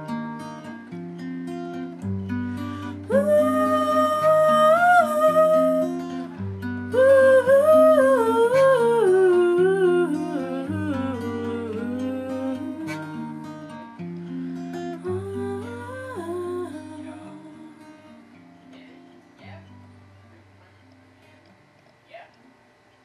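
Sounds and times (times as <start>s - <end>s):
acoustic guitar chords: 0.0s - 21.8s
young woman singing: 2.8s - 13.7s, 15.0s - 18.2s.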